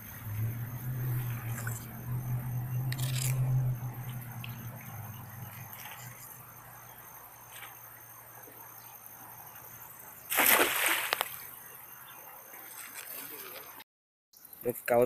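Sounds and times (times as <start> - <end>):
net splashing into water: 10.3 - 11.5.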